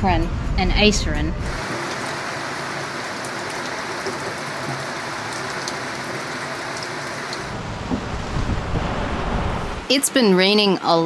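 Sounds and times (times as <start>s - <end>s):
rain falling on the sea: 1.5s - 9.9s.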